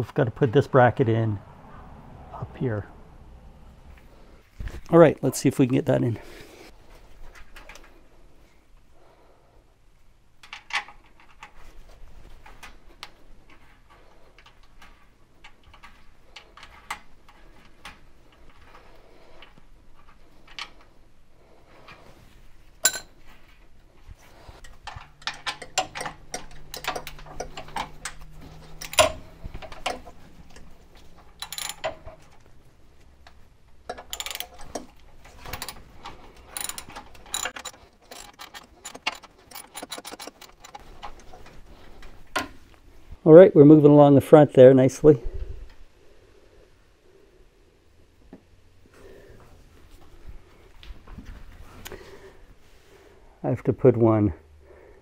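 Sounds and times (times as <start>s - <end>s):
small metallic clicks and clinks: 22.8s - 23.2s, 24.6s - 32.5s, 33.2s - 41.4s.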